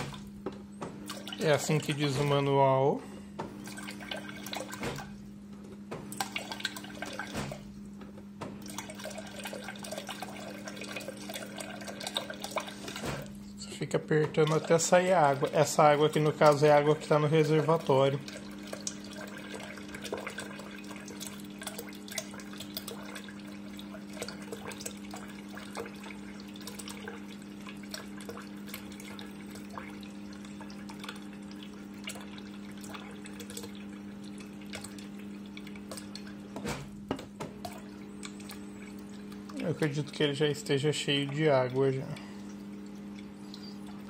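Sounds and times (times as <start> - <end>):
electric hum: 0.0 - 44.0
water stream splashing into pot: 6.1 - 7.7, 8.6 - 13.4, 14.3 - 36.5.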